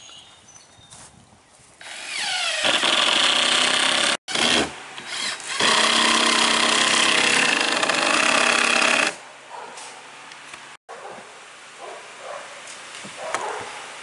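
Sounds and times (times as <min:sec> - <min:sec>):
power drill driving screws: 0:01.8 - 0:09.2.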